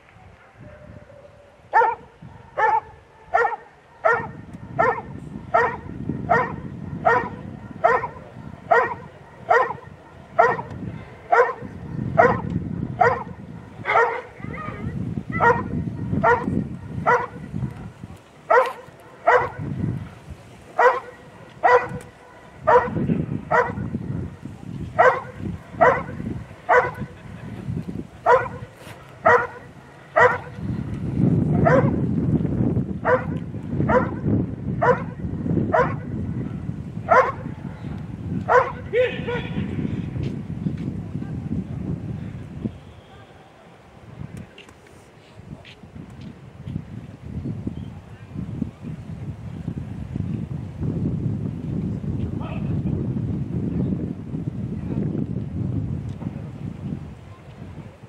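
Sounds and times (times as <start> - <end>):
dog barking: 0.6 - 10.7, 11.3 - 17.5, 18.5 - 19.7, 20.8 - 23.9, 25.0 - 27.2, 28.2 - 30.6, 31.6 - 32.0, 33.0 - 36.1, 37.1 - 37.5, 38.5 - 39.4
dog barking sharply: 1.8 - 2.0, 13.9 - 14.3, 18.5 - 19.6, 20.8 - 22.0, 22.7 - 23.8, 25.0 - 26.1, 26.7 - 27.0, 29.2 - 30.5, 34.8 - 35.1, 37.1 - 37.4, 38.5 - 38.8.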